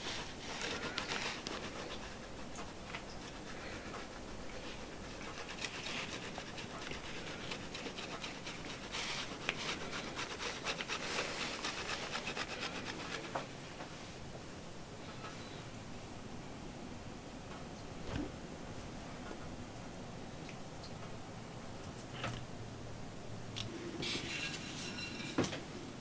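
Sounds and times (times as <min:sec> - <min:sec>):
food rasping on a hand grater: 0:00.0 - 0:13.5.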